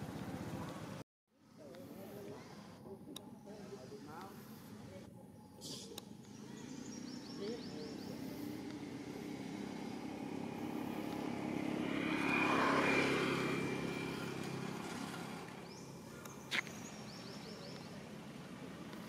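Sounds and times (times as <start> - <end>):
motor vehicle passing by: 6.2 - 19.0.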